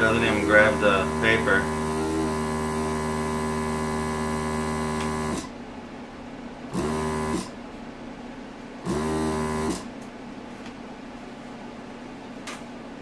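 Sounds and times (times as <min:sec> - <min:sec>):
vacuum pump humming: 0:00.0 - 0:05.6, 0:06.6 - 0:07.8, 0:08.8 - 0:10.8.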